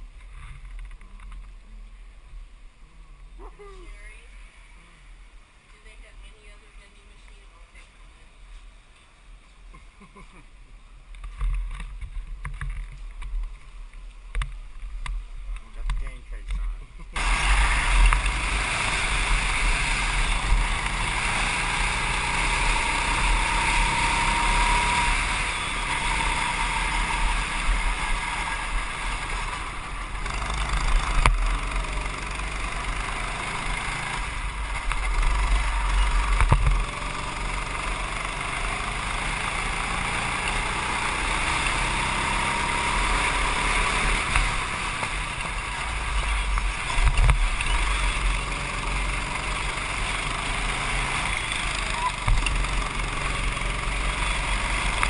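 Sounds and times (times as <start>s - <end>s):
steady low rumble: 0.0s - 20.9s
go-kart engine accelerating: 17.2s - 55.0s.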